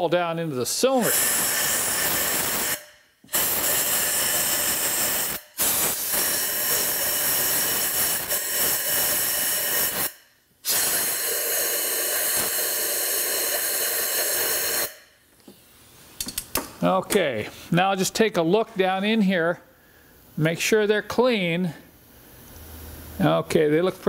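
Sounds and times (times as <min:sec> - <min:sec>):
compressed air blow gun hissing: 0:01.0 - 0:14.9.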